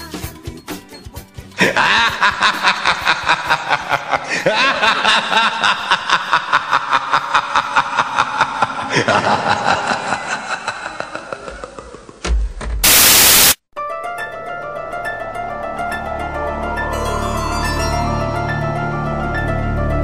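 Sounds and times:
pulsed chuckling laughter: 1.6 - 12.3.

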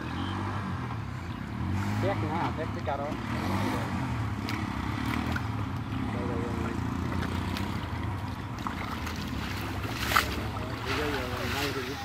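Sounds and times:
net splashing in water: 7.0 - 12.0.

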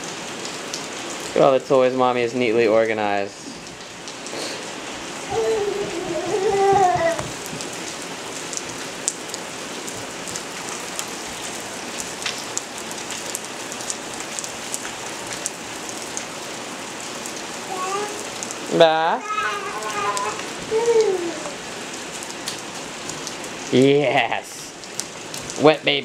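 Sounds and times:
rain on wooden deck: 0.0 - 26.0
short high voice: 5.3 - 7.2, 17.7 - 18.2, 19.2 - 21.6.

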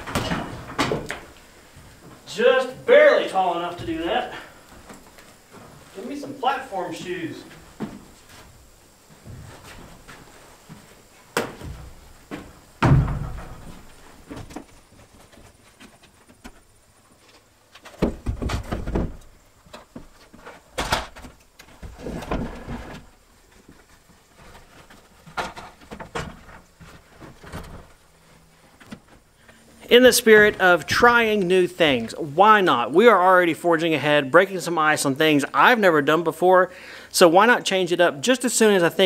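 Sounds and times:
wooden lumber knocking and thudding: 11.4 - 14.6, 17.9 - 19.2.

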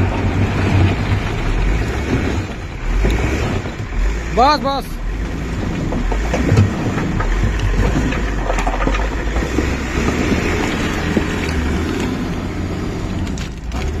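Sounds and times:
diesel engine under load: 0.0 - 14.0
coal clattering against steel bucket: 5.8 - 11.6.

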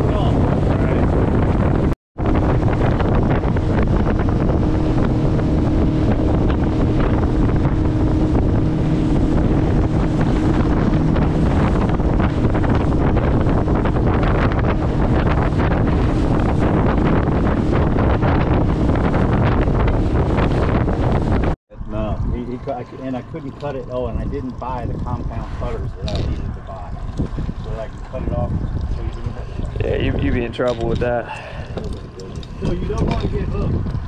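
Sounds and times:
boat engine humming: 0.0 - 34.0
wind buffeting microphone: 0.0 - 34.0.

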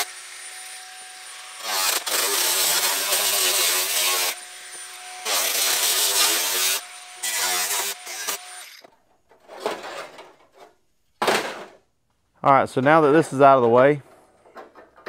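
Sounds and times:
angle grinder cutting sheet steel: 0.0 - 8.9.

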